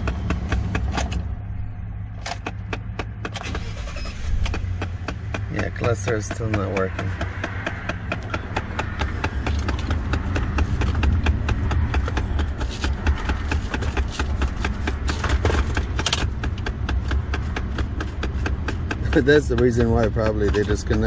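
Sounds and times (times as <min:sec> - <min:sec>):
actuator clicking rapidly: 0:04.4 - 0:21.0.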